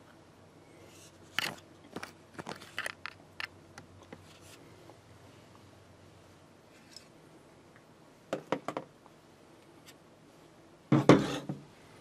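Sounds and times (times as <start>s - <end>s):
handling clicks taps and scrapes: 0.9s - 4.6s.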